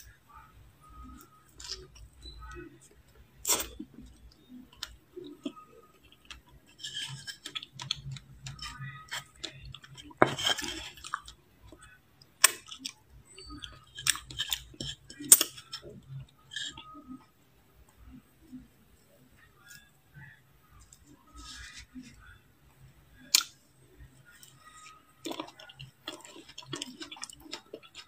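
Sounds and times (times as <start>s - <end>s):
spoon scraping ice: 6.3s - 11.2s, 13.3s - 17.2s.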